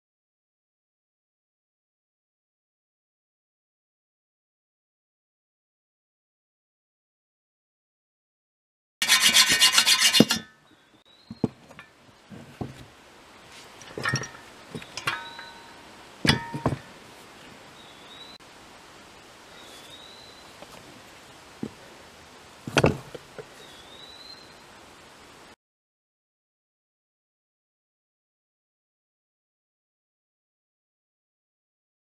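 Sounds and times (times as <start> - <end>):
hacksaw cutting steel: 9.0 - 10.6
metallic clinks and knocks: 13.8 - 16.9
bird chirping: 17.7 - 18.4, 19.5 - 20.6, 23.6 - 24.6.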